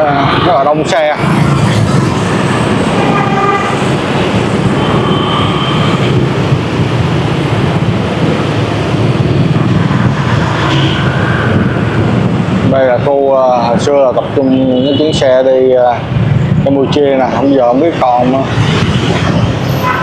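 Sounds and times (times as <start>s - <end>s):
traffic engines and road noise: 0.0s - 20.0s
vehicle horns: 2.9s - 6.4s, 10.6s - 11.2s, 14.4s - 15.4s, 19.6s - 20.0s.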